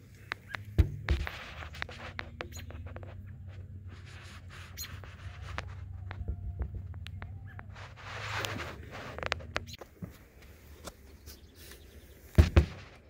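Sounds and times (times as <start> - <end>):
low steady hum: 0.0 - 13.0
short squeaks: 1.6 - 3.2, 4.5 - 5.5.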